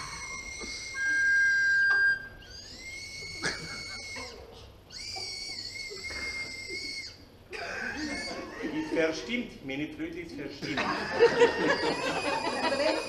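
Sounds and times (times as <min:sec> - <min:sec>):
recorder high notes: 0:00.0 - 0:04.3.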